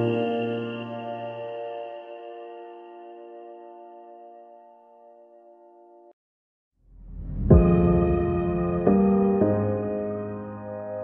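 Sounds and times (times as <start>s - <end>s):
background music: 0.0s - 6.1s, 7.5s - 11.0s
bell-like chord: 0.0s - 6.2s.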